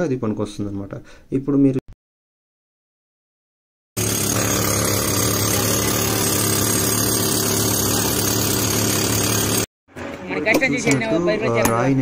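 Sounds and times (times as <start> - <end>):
pneumatic rock drill hammering: 4.0 - 9.7.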